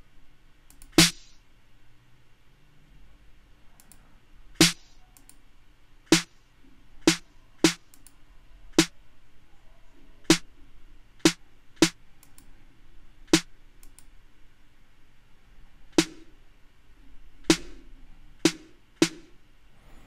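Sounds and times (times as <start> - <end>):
snare drum hits: 1.0 - 1.4, 4.6 - 4.9, 6.1 - 6.3, 7.1 - 7.8, 16.0 - 16.3, 17.5 - 17.8, 18.5 - 19.3.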